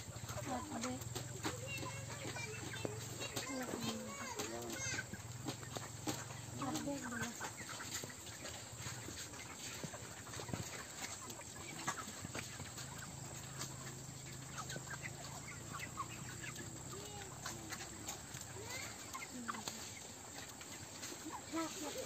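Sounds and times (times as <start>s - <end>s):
chickens clucking and peeping: 0.0s - 22.0s.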